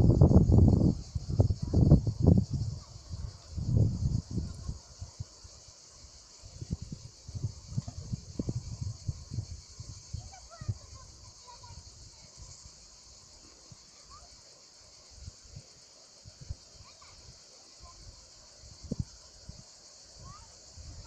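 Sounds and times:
high insect chorus: 0.0s - 21.0s.

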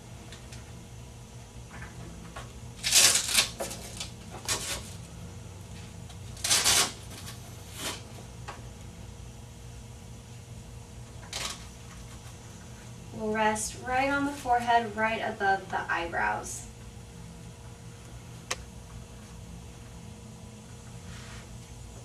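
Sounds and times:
rustling and scraping: 1.7s - 8.3s, 11.1s - 13.0s, 20.9s - 21.7s.

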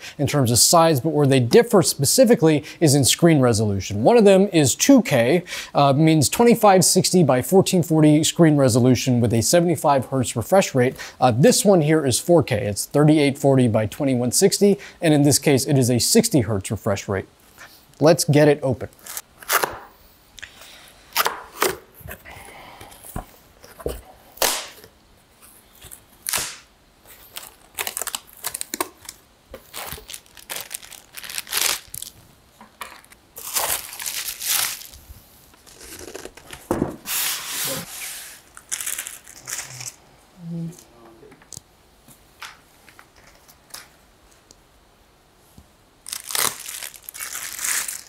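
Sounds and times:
plastic bags crinkling: 27.2s - 36.7s, 38.4s - 40.0s, 46.0s - 48.0s.

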